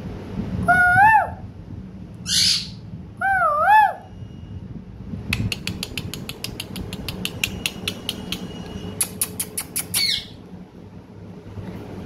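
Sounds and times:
parakeet squawk falling in pitch: 2.3s - 4.0s
parakeet clicking chips: 5.4s - 10.1s.

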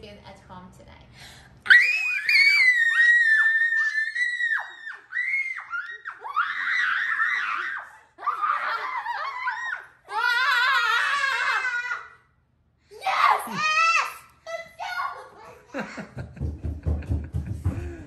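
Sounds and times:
children shrieking and squealing: 1.7s - 12.3s, 13.0s - 15.7s
children laughing: 1.8s - 12.3s, 13.4s - 18.0s.

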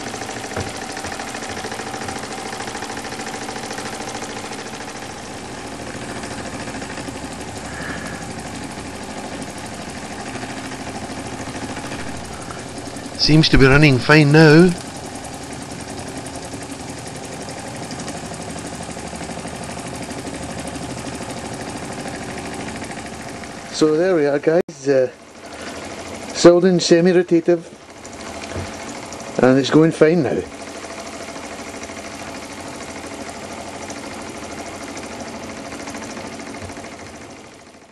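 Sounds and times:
toy steam engine exhaust beat: 0.0s - 17.2s
toy steam engine running: 0.0s - 37.9s.

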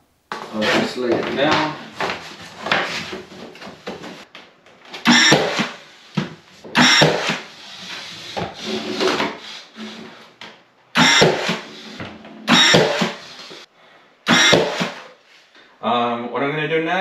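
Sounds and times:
hammer driving nails into trim: 5.0s - 5.8s, 6.8s - 7.5s, 11.0s - 11.6s, 12.5s - 13.3s, 14.3s - 15.1s.

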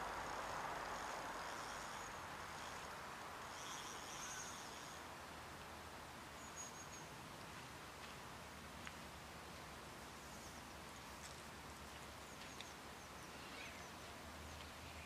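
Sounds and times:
steady low hiss: 0.0s - 15.0s
faint high chirping: 6.4s - 7.2s, 12.2s - 15.0s.

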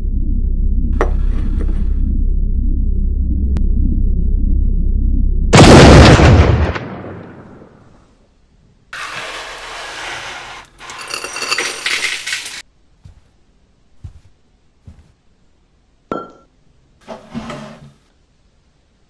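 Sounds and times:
loud boom: 5.5s - 7.9s
broken glass scraping and clinking: 10.8s - 12.6s.

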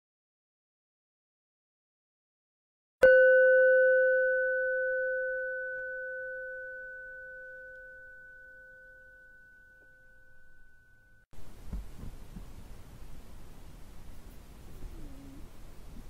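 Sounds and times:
meditation bell ringing: 3.0s - 11.3s.

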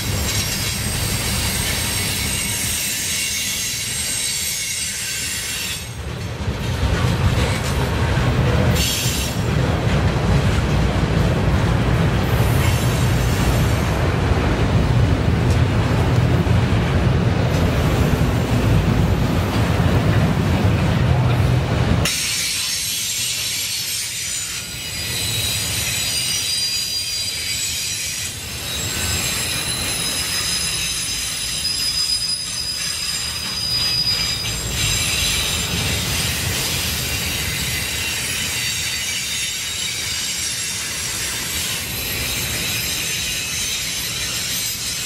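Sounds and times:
steel wheels rumbling on rail: 0.0s - 45.0s
high-pitched wheel squeal: 22.4s - 35.9s.

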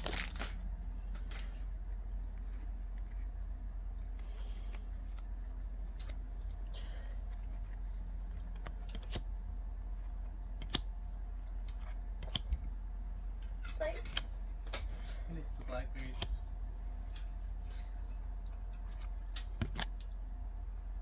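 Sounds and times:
low hum: 0.0s - 21.0s
cards flipping with sharp clicks: 7.2s - 9.3s.

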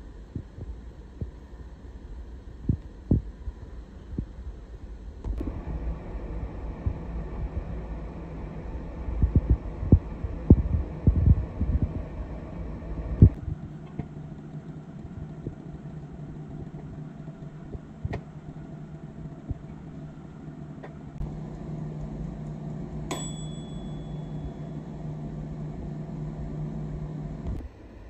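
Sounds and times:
steady low hum: 0.0s - 28.0s
ringing metal clink: 23.1s - 24.6s.

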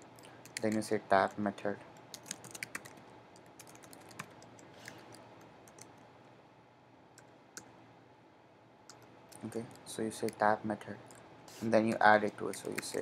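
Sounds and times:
keyboard typing: 0.2s - 0.9s, 2.0s - 6.0s, 8.9s - 10.4s, 11.8s - 13.0s.

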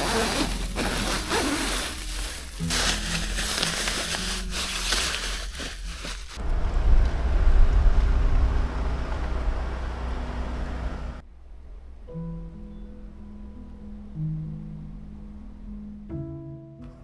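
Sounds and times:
tent fabric rustling: 0.0s - 6.4s
wind buffeting microphone: 6.4s - 9.8s.

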